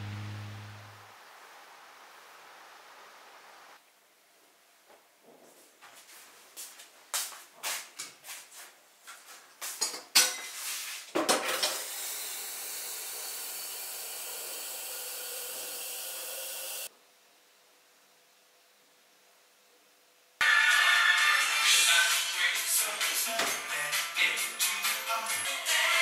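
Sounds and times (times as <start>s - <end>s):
metal kitchenware clinking: 9.8s - 10.6s
tap water running into kettle: 11.6s - 16.9s.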